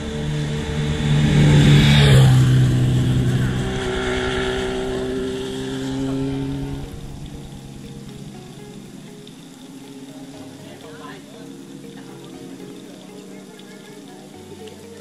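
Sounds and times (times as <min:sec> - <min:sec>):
wind and road noise: 0:00.0 - 0:10.1
motorcycle engine running: 0:00.0 - 0:15.0.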